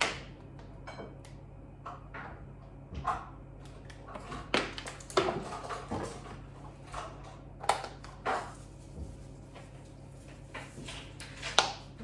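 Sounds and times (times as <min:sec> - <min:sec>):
steady low hum: 0:00.0 - 0:12.0
kitchen items knocking and clattering: 0:01.8 - 0:12.0.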